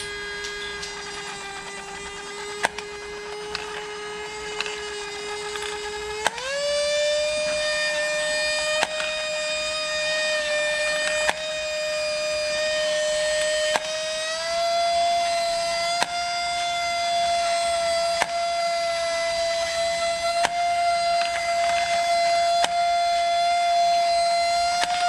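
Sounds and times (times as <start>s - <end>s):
toy motor and gears whining: 0.0s - 25.0s.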